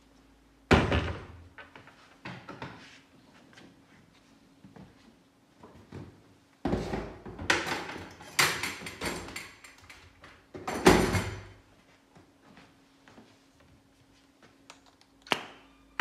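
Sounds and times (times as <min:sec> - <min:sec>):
tools knocking and rattling: 0:06.8 - 0:11.5.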